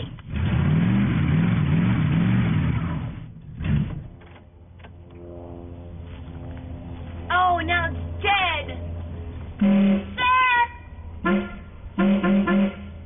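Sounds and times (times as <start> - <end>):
car engine revving in pulses: 0.0 - 4.4, 11.2 - 13.0.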